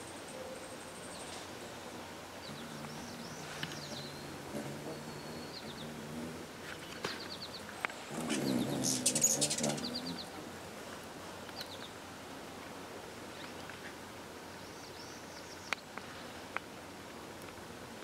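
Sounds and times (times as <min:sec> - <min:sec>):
hummingbird wings whirring: 0:01.0 - 0:10.7
hummingbird chip notes: 0:02.4 - 0:06.6, 0:07.4 - 0:10.4.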